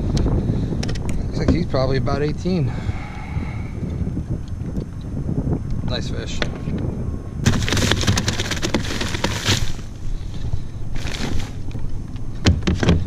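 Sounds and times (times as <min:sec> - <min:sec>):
rattling on plastic deck: 0:07.4 - 0:09.8.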